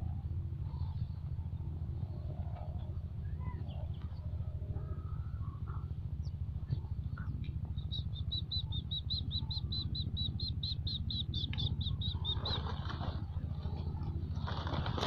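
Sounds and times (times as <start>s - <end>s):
low rumble: 0.0s - 15.0s
small bird chirping: 5.6s - 12.9s.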